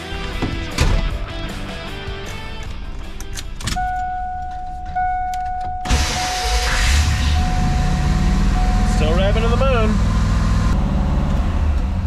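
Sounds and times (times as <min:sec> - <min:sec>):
car engine starting and idling: 0:02.3 - 0:12.0
dashboard warning chime: 0:03.8 - 0:10.4.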